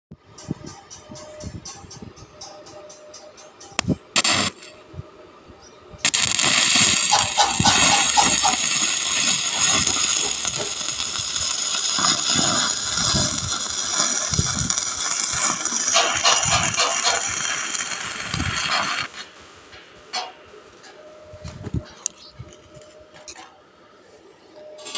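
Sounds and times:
welding arc crackling and hissing: 3.8 - 4.8, 6.0 - 20.4.

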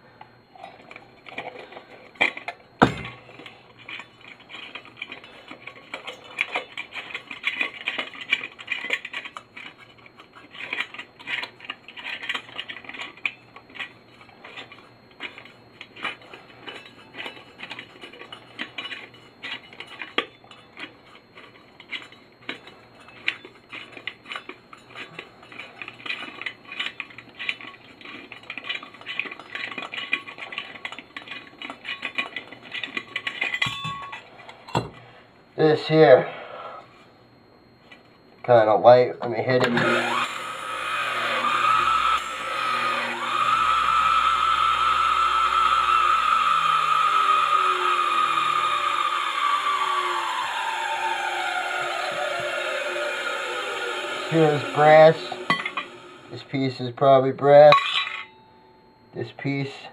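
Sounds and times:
brass fittings clinking and scraping: 0.6 - 35.2, 51.4 - 56.6, 57.5 - 58.4.

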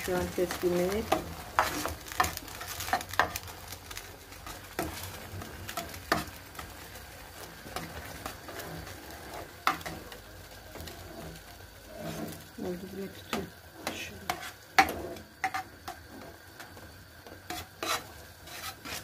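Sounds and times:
faint sizzle: 0.0 - 19.0
metal spatula scraping tray: 7.6 - 10.1, 10.8 - 12.5, 13.2 - 16.4, 17.5 - 19.0.

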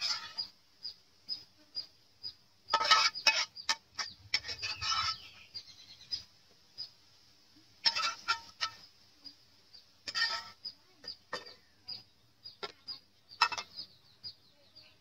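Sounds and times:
metal spoon scraping in a wok: 0.0 - 0.5, 2.7 - 5.6, 7.8 - 8.9, 10.0 - 11.6.

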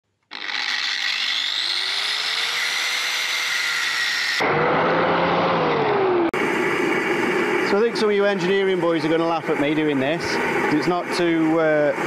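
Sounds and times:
angle grinder motor whine: 0.3 - 7.7.

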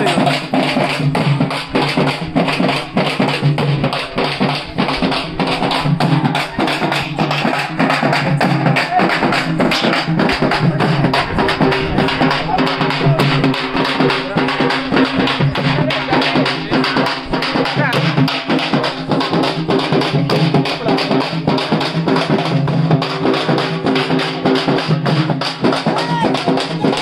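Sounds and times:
frame drums beaten fast: 0.0 - 27.0
voices: 0.0 - 27.0.

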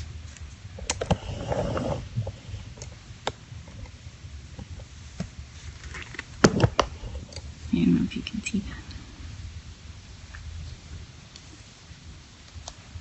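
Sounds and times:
soft rustling: 4.6 - 7.8.

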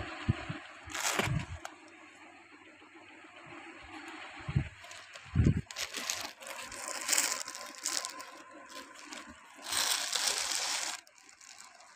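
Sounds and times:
plastic garment bags rustling: 0.9 - 1.7, 4.8 - 11.9.

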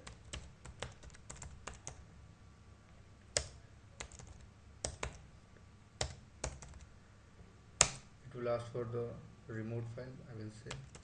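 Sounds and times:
computer keyboard typing: 0.0 - 2.0, 3.4 - 5.2, 6.0 - 6.9, 10.7 - 11.0.

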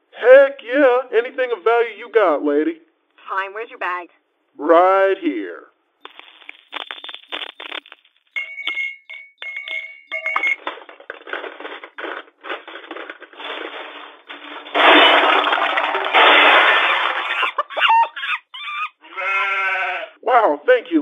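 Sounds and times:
jewelry and coins clinking: 8.4 - 10.6.

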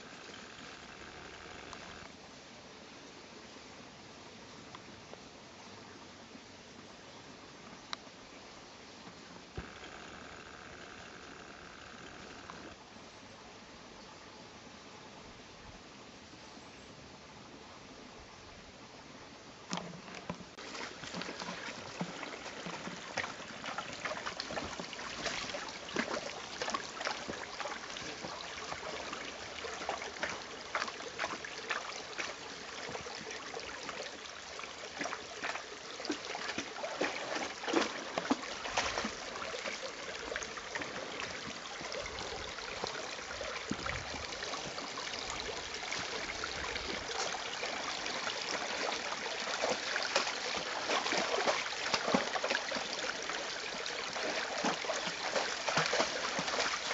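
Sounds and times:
stream trickling: 0.0 - 3.8, 4.5 - 14.3, 18.4 - 56.9
dogs splashing through water: 20.6 - 34.0, 34.9 - 56.9.

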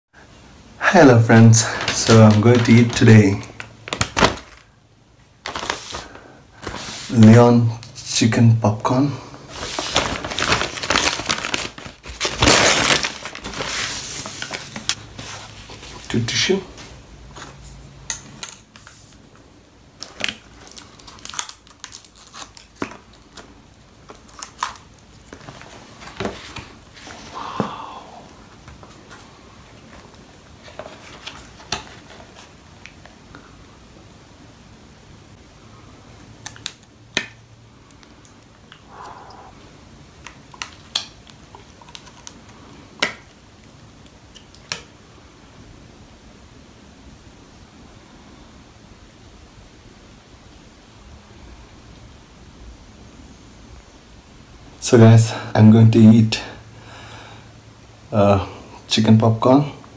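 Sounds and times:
paper crinkling and rustling: 1.4 - 4.7, 5.4 - 7.3, 9.5 - 17.7, 20.0 - 27.3, 28.6 - 33.2.

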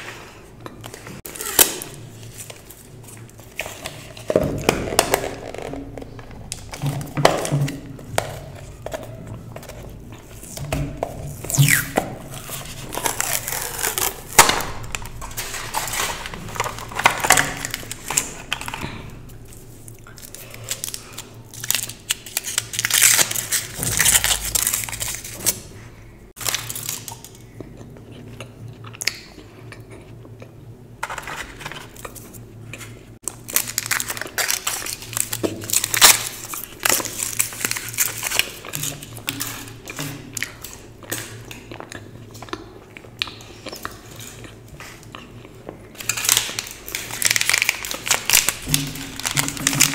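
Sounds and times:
foil wrappers crinkling: 0.8 - 27.4, 33.2 - 41.7, 46.0 - 49.9.

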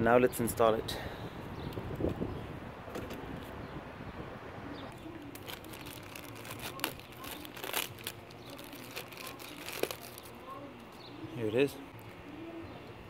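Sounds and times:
plastic bag crinkling: 4.9 - 10.4.

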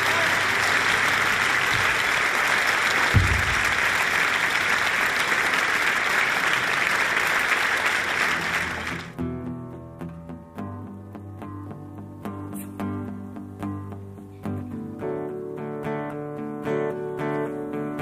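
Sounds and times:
audience applauding: 0.0 - 9.2
low thump: 3.1 - 3.6.

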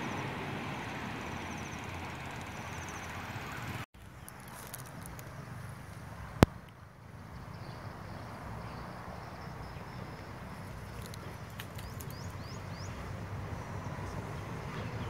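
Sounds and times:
bird chirping: 7.4 - 13.2.

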